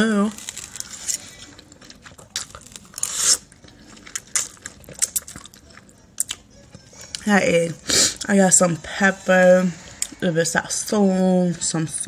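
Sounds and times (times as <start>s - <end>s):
wet chewing: 0.4s - 7.3s.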